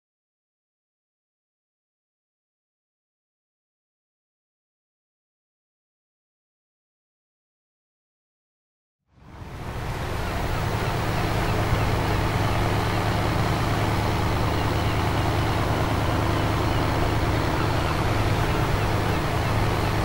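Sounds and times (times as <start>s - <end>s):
boat engine droning: 9.2s - 20.0s.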